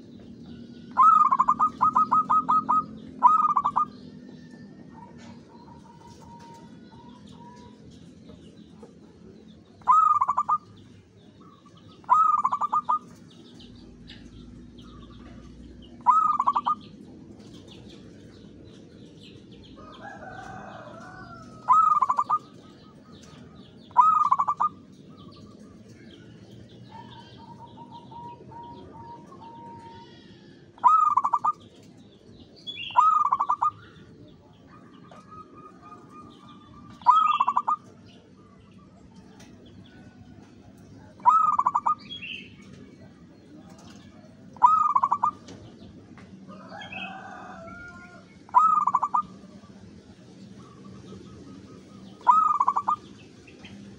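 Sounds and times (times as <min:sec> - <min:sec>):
dove cooing staccato phrases: 0:00.9 - 0:07.9, 0:08.8 - 0:13.4, 0:15.0 - 0:18.6, 0:20.2 - 0:31.8, 0:32.8 - 0:39.2, 0:40.4 - 0:42.9, 0:44.5 - 0:47.2, 0:48.4 - 0:49.7, 0:50.6 - 0:53.9
soft trilling coo: 0:01.0 - 0:03.9, 0:41.0 - 0:42.0, 0:43.6 - 0:45.4, 0:52.2 - 0:53.0.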